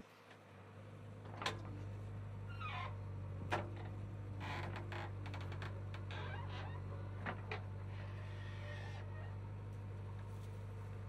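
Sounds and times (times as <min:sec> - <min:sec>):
diesel engine humming: 0:00.5 - 0:11.0
falling creak: 0:02.5 - 0:03.0, 0:04.4 - 0:06.9.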